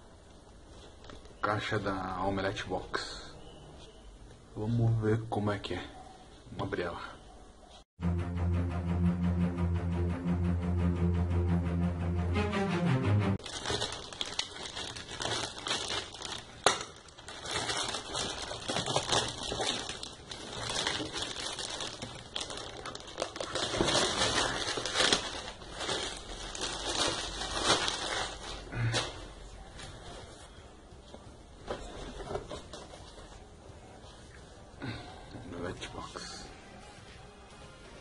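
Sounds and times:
music: 8.0 - 13.4
plastic mailer crinkling: 13.4 - 28.7.

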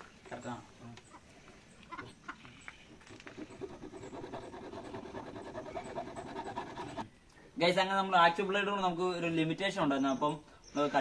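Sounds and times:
hacksaw sawing plastic: 3.2 - 7.1.

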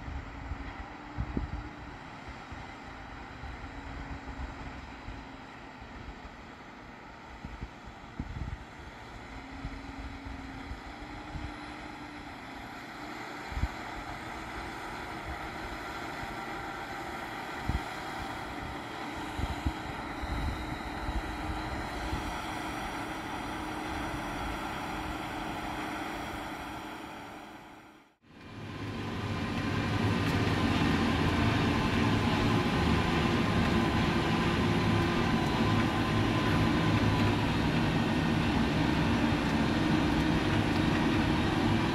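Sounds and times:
wind buffeting microphone: 0.0 - 2.0, 7.4 - 8.8, 17.4 - 25.8
tractor diesel engine under load: 0.0 - 41.9.

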